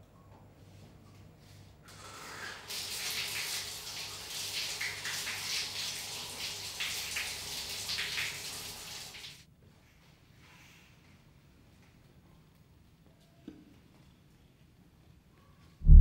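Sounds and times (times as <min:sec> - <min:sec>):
tap water running and splashing: 0:01.9 - 0:09.4.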